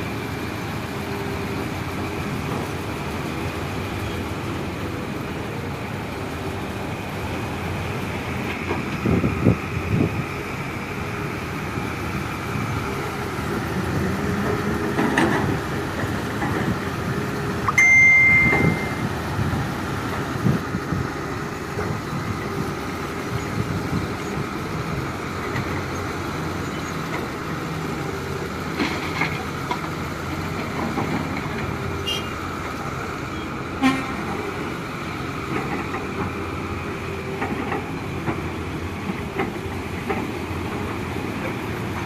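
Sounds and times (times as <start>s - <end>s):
diesel construction machinery running: 0.0s - 42.0s
short high-pitched tone: 17.7s - 19.2s.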